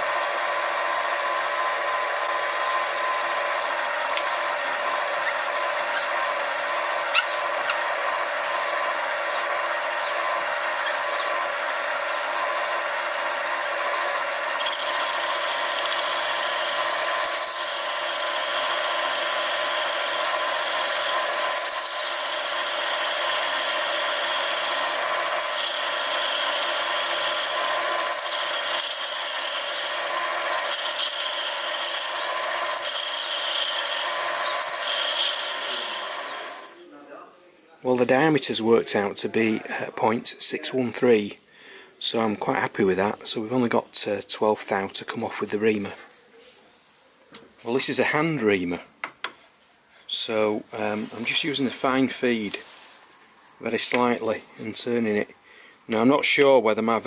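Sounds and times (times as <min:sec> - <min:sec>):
mill spindle running: 0:00.0 - 0:36.8
short squeaks: 0:07.1 - 0:07.8.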